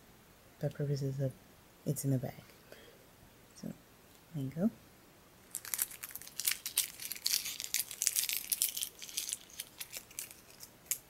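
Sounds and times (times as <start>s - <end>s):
candy wrapper crinkling: 5.4s - 11.0s.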